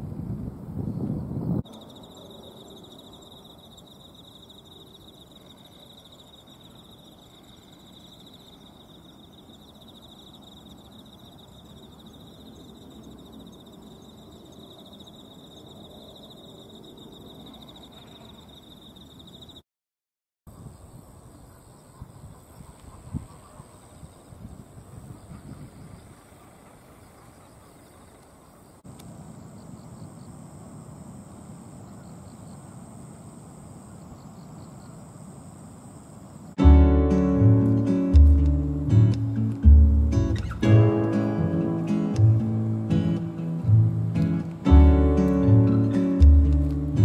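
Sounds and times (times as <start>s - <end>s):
higher-pitched insect trill: 0.9s - 19.6s, 27.1s - 47.0s
insect trilling: 1.7s - 19.6s.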